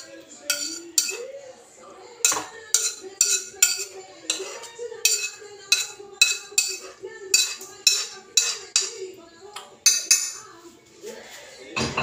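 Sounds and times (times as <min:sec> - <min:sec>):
metal spatula scraping a wok: 0:00.0 - 0:01.3, 0:02.2 - 0:09.0.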